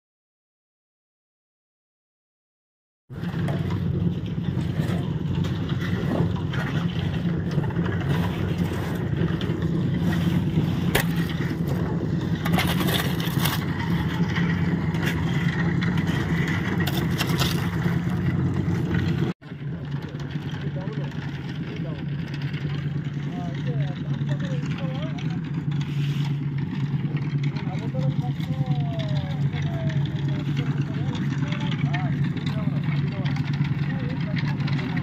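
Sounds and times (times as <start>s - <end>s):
concrete mixer engine running: 3.1s - 35.0s
shovel scraping stone concrete: 7.9s - 18.2s.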